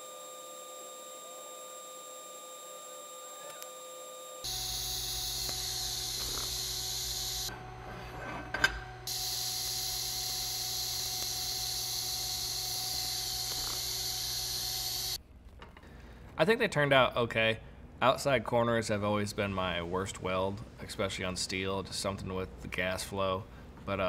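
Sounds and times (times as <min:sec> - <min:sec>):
welding arc hissing: 0:04.4 - 0:07.5, 0:09.1 - 0:15.2.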